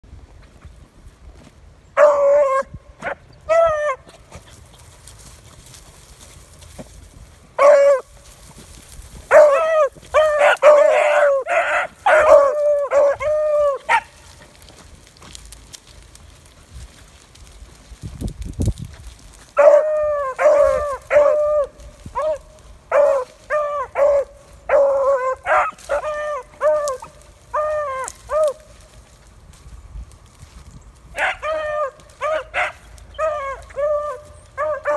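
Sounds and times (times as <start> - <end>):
dogs baying: 7.6 - 8.1, 9.3 - 14.6, 19.6 - 28.7, 31.1 - 34.9.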